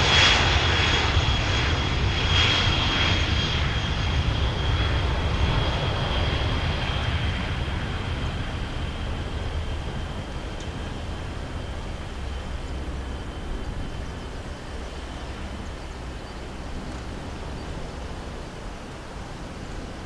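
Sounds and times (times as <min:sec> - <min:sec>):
aircraft engines whining: 0:00.0 - 0:20.0.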